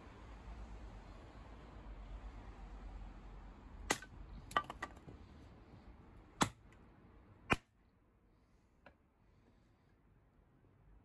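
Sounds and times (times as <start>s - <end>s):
axe chopping wood: 3.8s - 5.2s, 6.4s - 6.7s, 7.5s - 7.7s.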